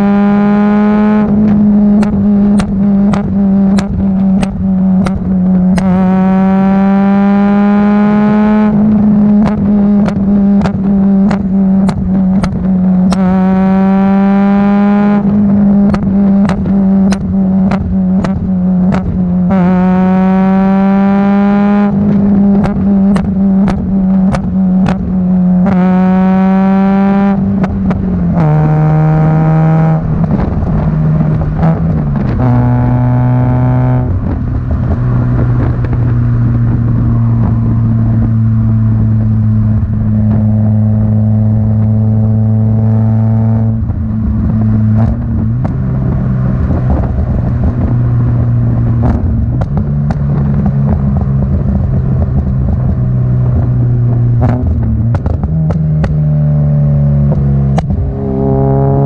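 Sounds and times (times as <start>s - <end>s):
car engine revving: 0.0s - 59.0s
exhaust pops and cracks: 1.3s - 6.0s, 8.7s - 13.3s, 15.3s - 19.3s, 22.0s - 25.1s, 43.8s - 56.2s, 57.2s - 58.1s.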